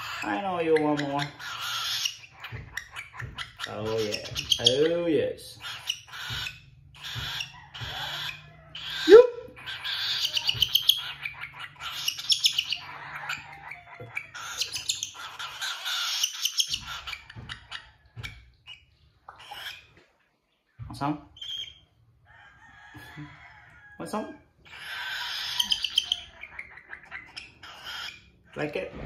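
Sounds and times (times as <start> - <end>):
cockatiel raspy begging calls: 0.0 - 4.7, 5.6 - 17.4, 24.6 - 28.6.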